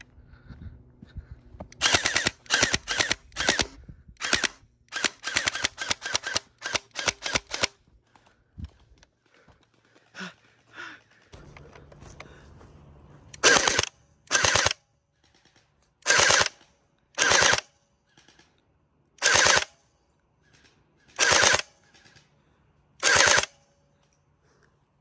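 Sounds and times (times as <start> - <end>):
gel blaster firing rapid bursts: 1.8 - 7.8, 13.4 - 14.8, 16.0 - 16.6, 17.2 - 17.7, 19.2 - 19.7, 21.2 - 21.7, 23.0 - 23.6.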